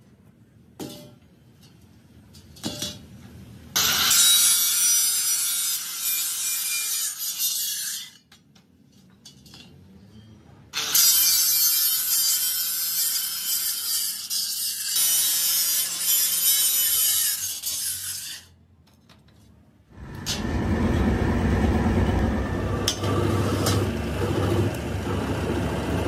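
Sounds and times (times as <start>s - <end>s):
angle grinder cutting steel: 3.8s - 8.2s, 10.8s - 18.5s, 20.0s - 26.0s.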